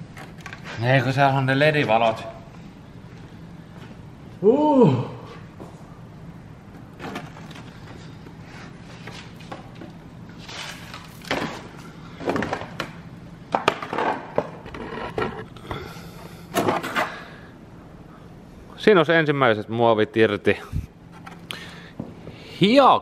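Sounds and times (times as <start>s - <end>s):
hard plastic knocking and scraping: 13.5s - 15.5s.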